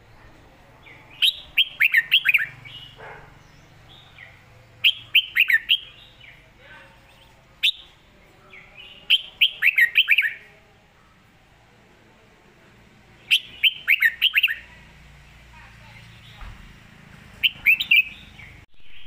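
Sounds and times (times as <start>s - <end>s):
bird singing whistled notes: 1.1s - 3.0s, 3.9s - 6.4s, 7.1s - 8.0s, 8.7s - 10.5s, 13.3s - 14.7s, 17.4s - 19.0s.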